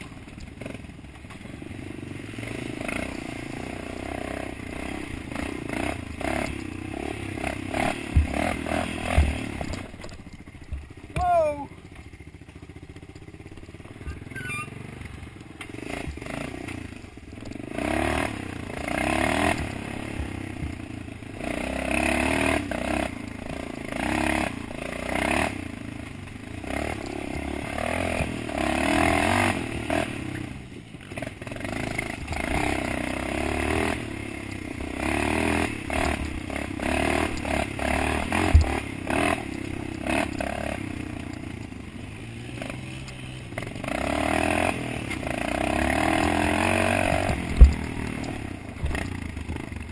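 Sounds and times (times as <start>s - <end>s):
bike rattling and scraping: 0.0s - 49.9s
dirt bike engine revving: 0.0s - 49.9s.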